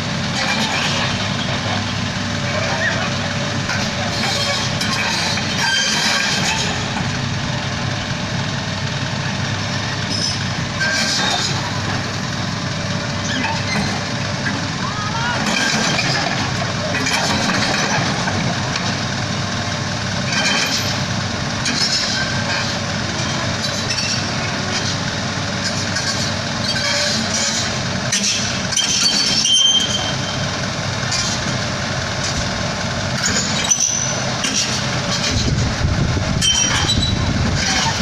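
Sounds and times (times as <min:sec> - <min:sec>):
excavator diesel engine running: 0:00.0 - 0:38.0
steel tracks clanking: 0:00.0 - 0:38.0
short high squeaks: 0:28.2 - 0:30.5, 0:33.2 - 0:35.5, 0:36.4 - 0:38.0.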